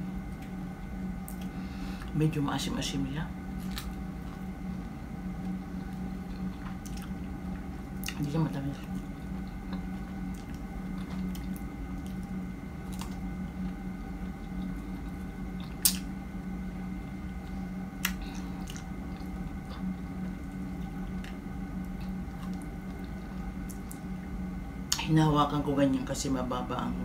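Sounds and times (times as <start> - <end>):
steady low hum: 0.0 - 27.0
wet chewing of strawberries: 3.6 - 16.1, 17.2 - 24.0.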